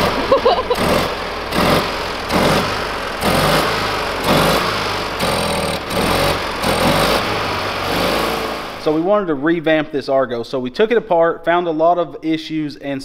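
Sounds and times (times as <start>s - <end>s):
engine idling: 0.0s - 9.2s.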